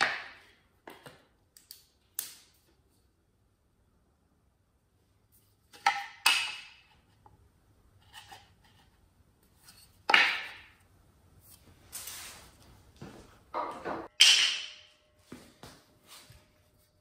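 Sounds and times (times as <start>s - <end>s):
wooden boards clacking: 5.8s - 6.9s.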